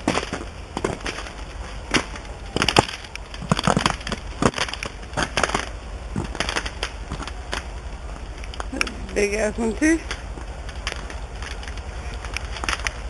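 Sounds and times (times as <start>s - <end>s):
twigs snapping: 0.0s - 9.2s, 10.0s - 13.0s.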